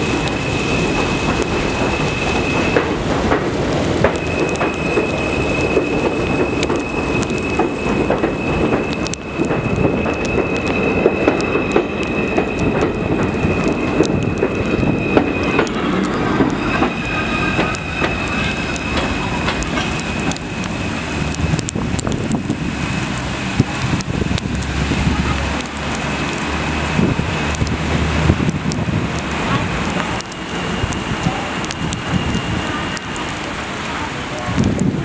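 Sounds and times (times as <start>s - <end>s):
high steady tone: 0.0s - 22.5s
subway train rumbling: 0.0s - 35.0s.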